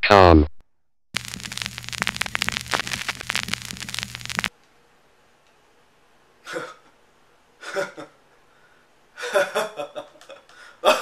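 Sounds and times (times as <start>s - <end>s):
old film crackle: 1.1s - 4.5s
steady low hum: 1.2s - 4.5s.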